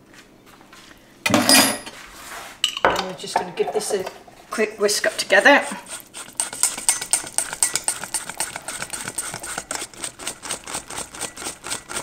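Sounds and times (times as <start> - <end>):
whisk wires clicking against metal bowl: 5.2 - 12.0.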